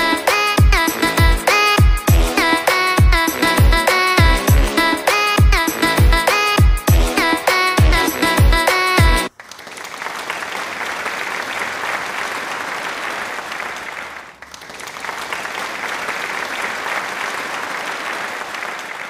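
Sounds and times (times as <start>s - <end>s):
audience applause: 9.3s - 19.0s.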